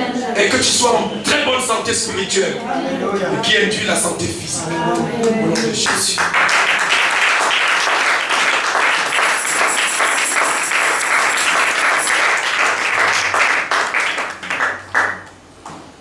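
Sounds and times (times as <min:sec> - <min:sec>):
congregation applauding: 0:05.6 - 0:15.4.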